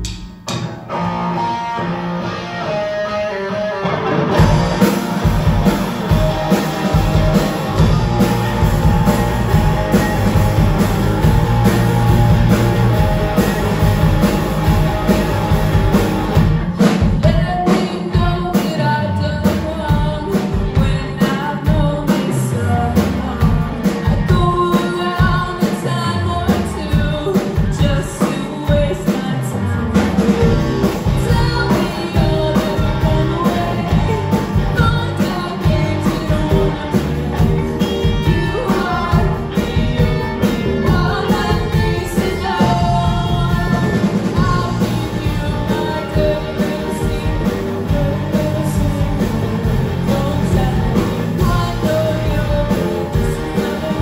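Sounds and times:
drum kit: 0.0s - 54.0s
electric guitars: 0.0s - 54.0s
live rock band playing: 0.0s - 54.0s
person singing: 16.8s - 54.0s.

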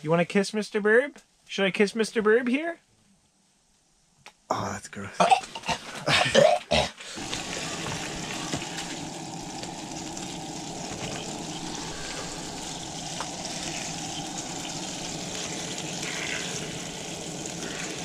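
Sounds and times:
steady hissing rush: 7.0s - 18.0s.

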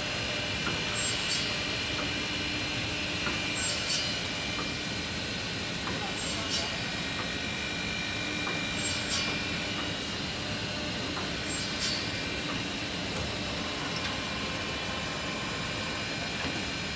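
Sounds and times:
pneumatic hiss: 0.9s - 1.5s, 3.6s - 4.2s, 8.7s - 9.4s, 11.4s - 12.2s.

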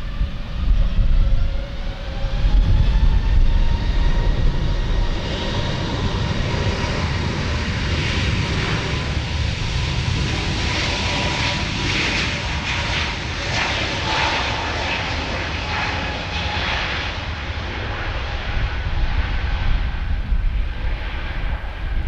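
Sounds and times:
jet engine whine rising: 0.0s - 22.0s
heavy low rumble: 16.9s - 22.0s.

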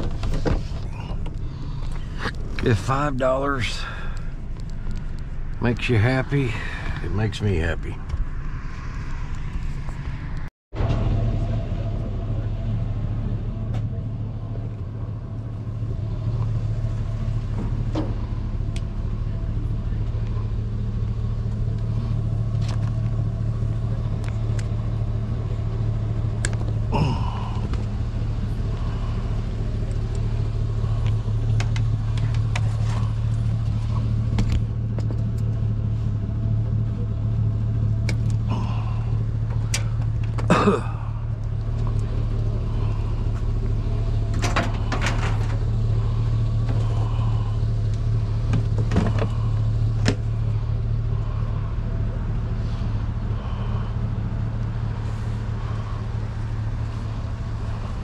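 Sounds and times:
truck engine idling: 0.0s - 58.0s.

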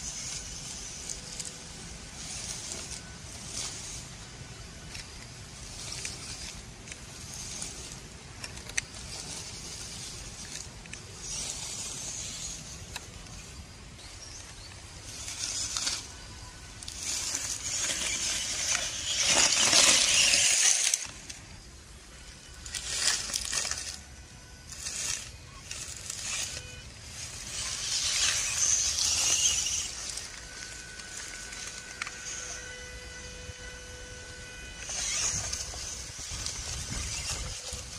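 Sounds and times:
grass and dry leaves rustling: 0.0s - 37.9s
toy truck pushing through undergrowth: 0.0s - 37.9s.

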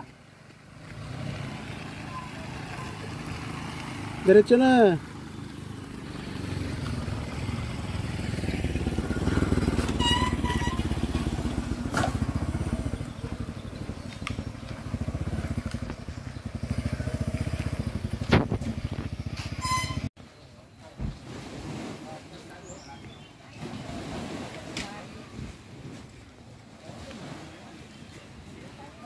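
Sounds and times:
motorcycle engine running: 0.3s - 20.1s.

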